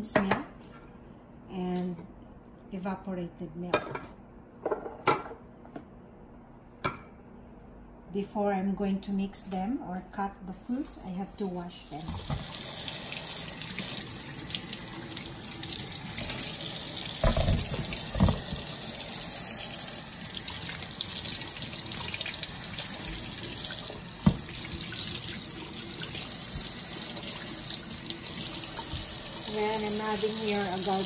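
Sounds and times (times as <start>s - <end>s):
tap running into sink: 12.0s - 13.0s, 13.8s - 19.1s, 20.4s - 25.4s, 26.0s - 29.3s
knocks in sink: 17.2s - 18.7s, 24.2s - 24.6s.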